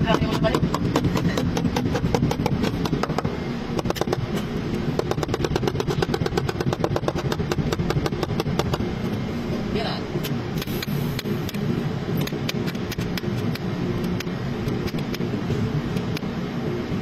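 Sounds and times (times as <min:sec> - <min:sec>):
machine knocking: 0:05.0 - 0:08.8.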